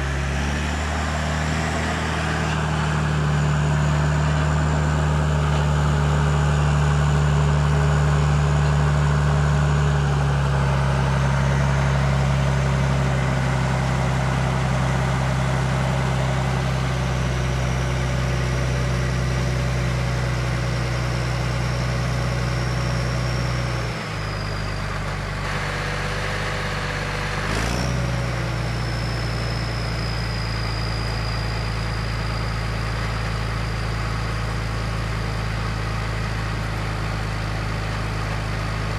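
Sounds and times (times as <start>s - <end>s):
diesel engine idling: 0.0s - 38.9s
turbo whistle: 28.5s - 34.0s.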